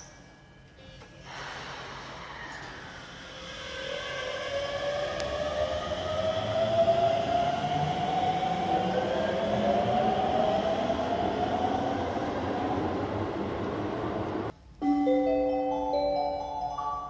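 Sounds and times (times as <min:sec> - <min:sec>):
train motor whine: 0:01.0 - 0:14.5
wheels rumbling on rails: 0:01.8 - 0:14.5.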